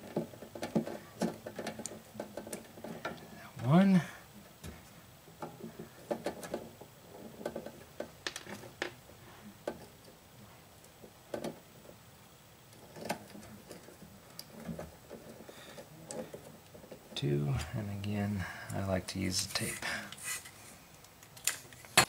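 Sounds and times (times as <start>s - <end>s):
wires rustling and clicking: 0.0s - 22.0s.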